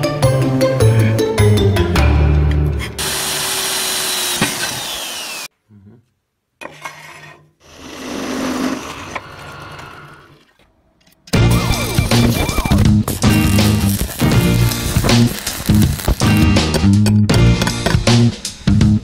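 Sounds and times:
drill press boring into steel: 0:03.0 - 0:05.5
power tool falling whine: 0:03.0 - 0:05.5.

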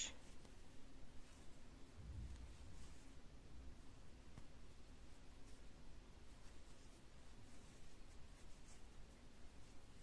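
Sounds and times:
low steady hum: 0:00.0 - 0:10.0
yarn rustling on crochet hook: 0:00.0 - 0:10.0.

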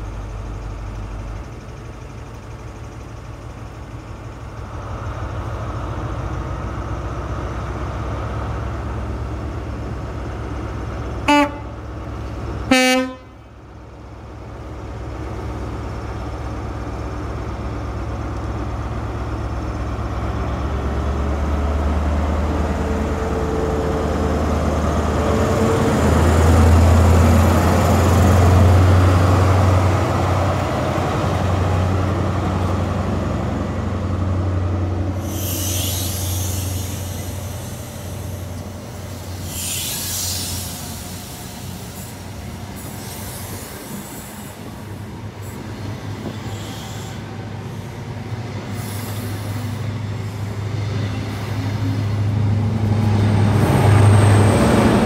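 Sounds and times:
diesel locomotive engine: 0:00.0 - 0:55.0
train passing: 0:00.0 - 0:55.0
two-tone train horn blasts: 0:11.2 - 0:11.8, 0:12.7 - 0:13.4.

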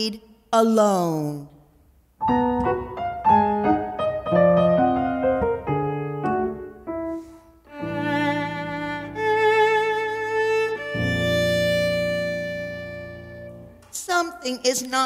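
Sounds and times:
piano playing: 0:02.2 - 0:13.9
viola playing: 0:04.3 - 0:13.8.

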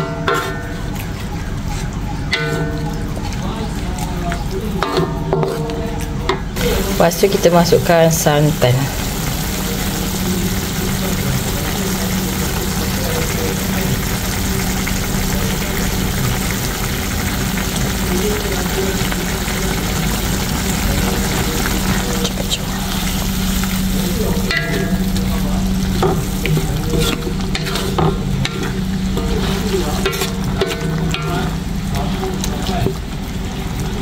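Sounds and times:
liquid sizzling in a wok: 0:06.6 - 0:34.0
spatula scraping a wok: 0:26.0 - 0:32.5.

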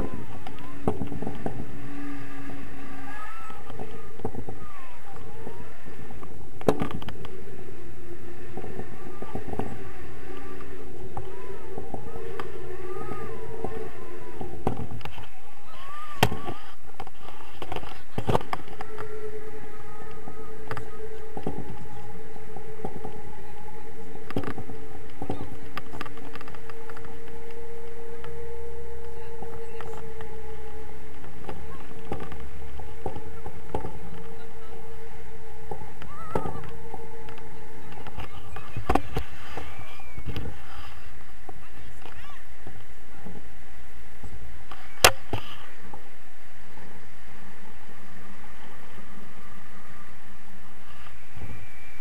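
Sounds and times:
thin whistling tones: 0:00.0 - 0:42.4, 0:44.2 - 0:52.0
wind buffeting microphone: 0:00.0 - 0:52.0.

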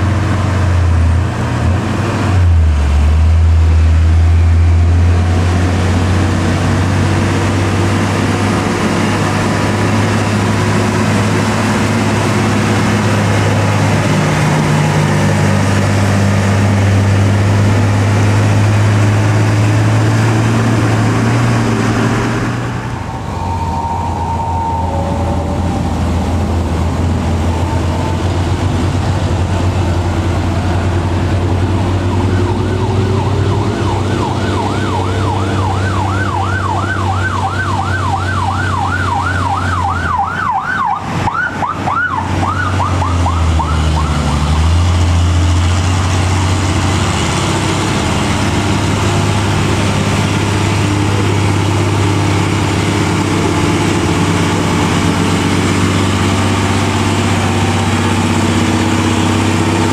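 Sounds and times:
diesel truck engine under load: 0:00.0 - 0:59.9
fast warbling siren tone: 0:21.6 - 0:28.3, 0:31.7 - 0:44.6.

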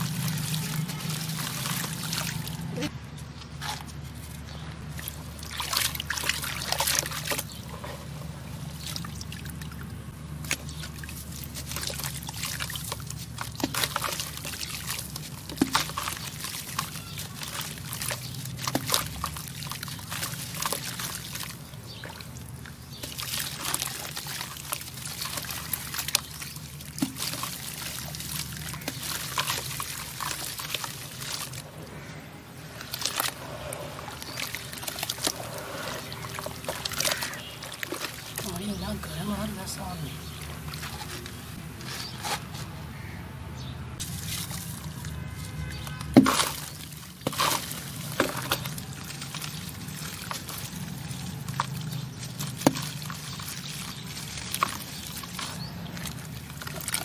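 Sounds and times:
crunching and crackling: 0:00.0 - 0:43.2, 0:44.0 - 0:57.0
wet squishing: 0:00.0 - 0:43.2, 0:44.0 - 0:57.0
grit falling into water: 0:08.7 - 0:31.7, 0:32.6 - 0:38.6, 0:44.0 - 0:57.0.

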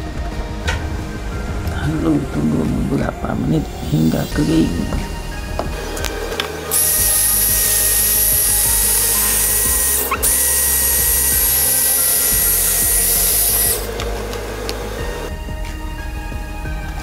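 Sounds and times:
hair dryer running: 0:05.2 - 0:15.4.

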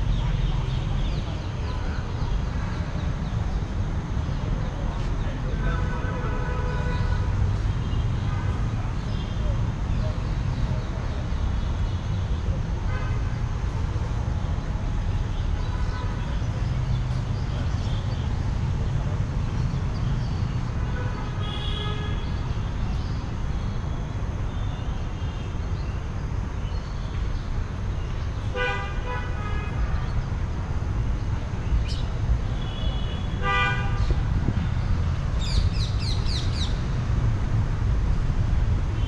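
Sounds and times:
city traffic rumble: 0:00.0 - 0:39.0
vehicle horns honking: 0:20.9 - 0:22.3, 0:32.6 - 0:34.2.

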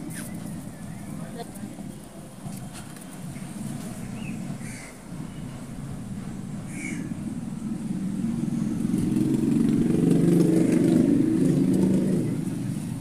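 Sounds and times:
vehicle engine passing by: 0:07.0 - 0:13.0.

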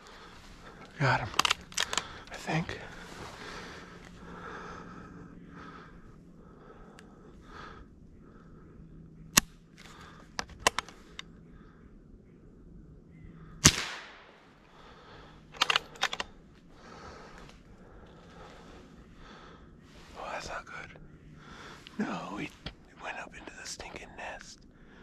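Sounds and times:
quick clicks: 0:01.2 - 0:02.1, 0:15.6 - 0:16.3
rifle shots cracking: 0:13.6 - 0:14.5.

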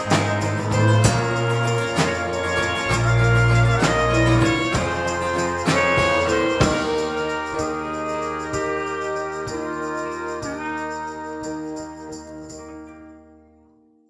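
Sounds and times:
sustained low bass: 0:00.0 - 0:08.5
clarinet: 0:00.0 - 0:13.8
strummed guitar: 0:00.0 - 0:13.9.

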